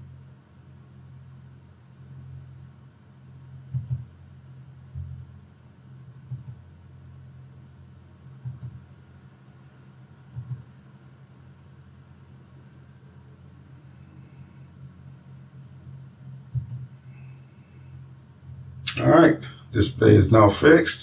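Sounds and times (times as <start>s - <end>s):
low steady hum: 0.0s - 21.0s
computer mouse button clicks: 3.7s - 4.0s, 6.3s - 6.6s, 8.4s - 8.8s, 10.4s - 10.6s, 16.5s - 16.9s.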